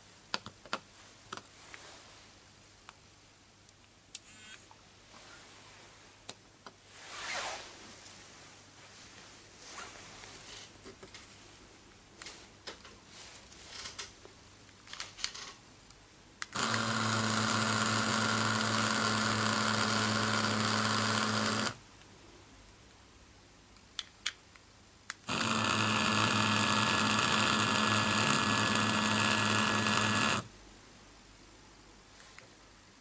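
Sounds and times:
pager buzzing: 0:04.2 - 0:04.7, 0:25.3 - 0:30.4.

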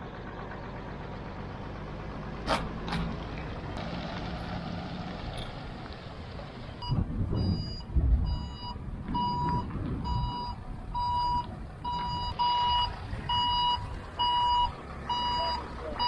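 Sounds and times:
low engine rumble: 0:00.0 - 0:16.0
wind rumble: 0:03.5 - 0:15.1
reversing alarm beeping: 0:06.8 - 0:16.0.

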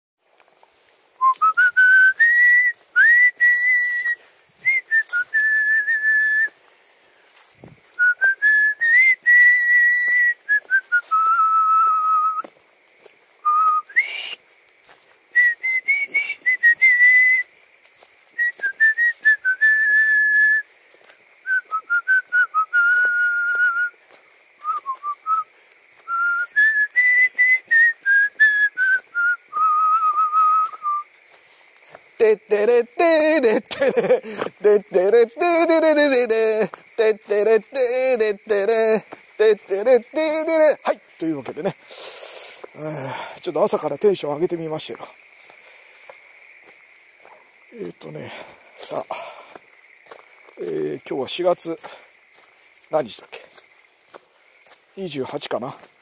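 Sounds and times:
person whistling a tune: 0:01.2 - 0:06.6, 0:08.0 - 0:12.5, 0:13.4 - 0:14.4, 0:15.4 - 0:17.5, 0:18.4 - 0:20.7, 0:21.4 - 0:24.0, 0:24.6 - 0:31.1.

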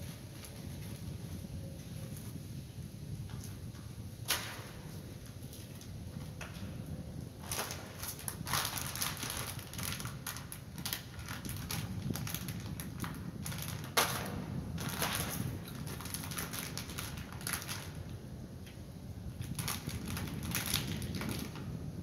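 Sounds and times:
wrapper crinkling: 0:07.4 - 0:18.1, 0:19.4 - 0:21.7.

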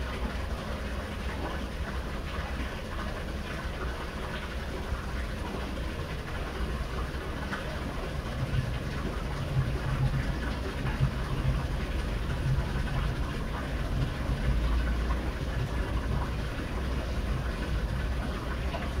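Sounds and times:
low uneven rumble: 0:00.0 - 0:19.0
water splashing onto waterwheel: 0:00.0 - 0:19.0.

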